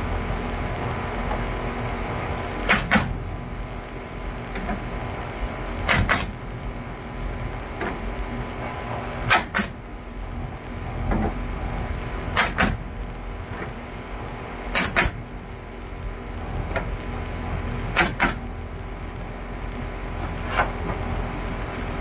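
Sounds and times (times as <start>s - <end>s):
steady low hum: 0.0s - 22.0s
nail gun firing into wood: 2.6s - 3.2s, 5.8s - 6.4s, 9.3s - 9.8s, 12.3s - 12.8s, 14.7s - 15.2s, 17.9s - 18.4s.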